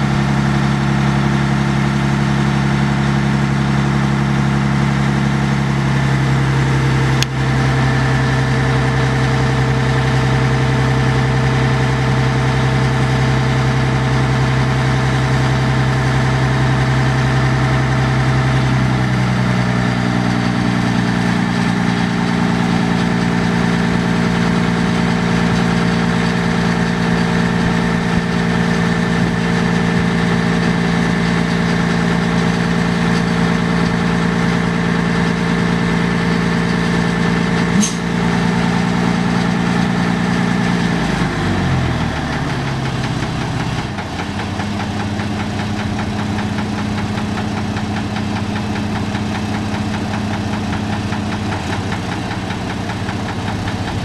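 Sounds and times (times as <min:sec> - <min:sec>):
diesel engine idling: 0:00.0 - 0:54.0
sharp click: 0:37.6 - 0:38.1.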